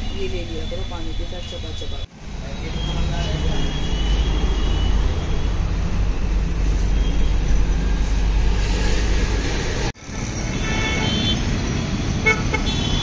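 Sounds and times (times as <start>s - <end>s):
vehicle and road rumble: 0.0s - 13.0s.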